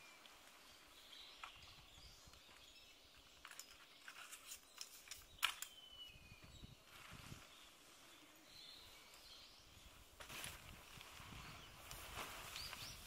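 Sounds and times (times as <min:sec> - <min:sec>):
tent canvas and pole handling: 0:10.2 - 0:13.0.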